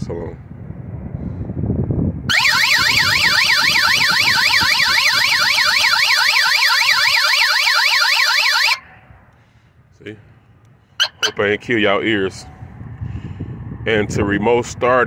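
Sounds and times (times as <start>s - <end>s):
warbling alarm siren: 2.3s - 8.8s, 11.0s - 11.4s.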